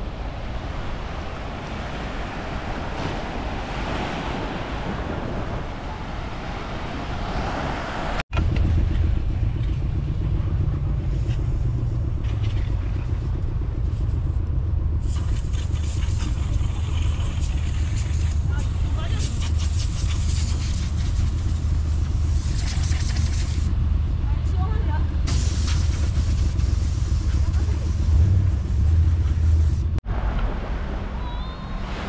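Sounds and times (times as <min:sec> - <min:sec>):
vehicle engine running: 0:08.3 - 0:30.0.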